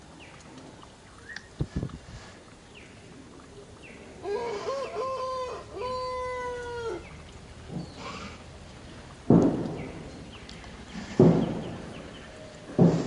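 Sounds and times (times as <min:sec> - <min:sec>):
rooster crowing: 0:04.2 - 0:07.0.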